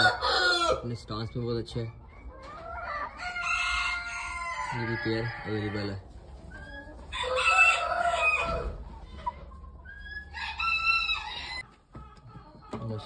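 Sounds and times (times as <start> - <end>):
rooster crowing: 0.0 - 0.8, 7.1 - 8.8, 10.3 - 11.6.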